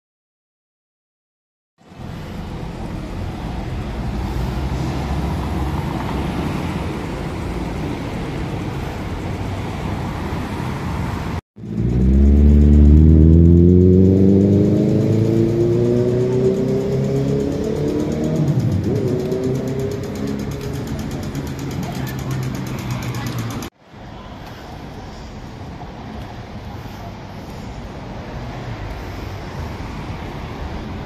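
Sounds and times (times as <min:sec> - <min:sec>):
city street rumble: 0:01.8 - 0:31.0
vehicle engine accelerating: 0:01.9 - 0:08.8, 0:11.0 - 0:23.7.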